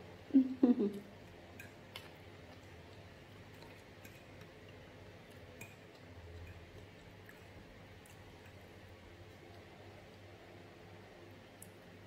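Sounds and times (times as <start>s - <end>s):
fork clicking on a plate: 5.6s - 6.6s.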